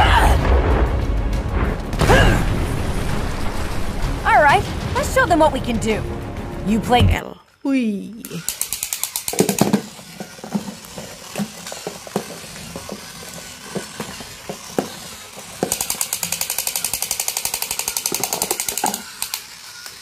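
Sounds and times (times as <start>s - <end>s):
toy machine-gun sound effect: 8.2s - 20.0s
toy knocking on floor: 9.3s - 9.9s.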